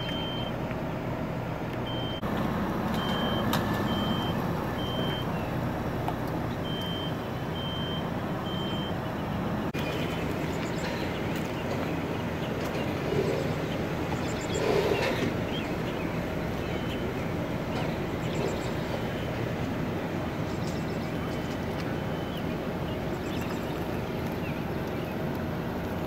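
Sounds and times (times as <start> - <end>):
vehicle backup alarm beeping: 0.0 - 0.6, 1.8 - 12.1, 14.2 - 23.0
engine rumble: 0.0 - 26.0.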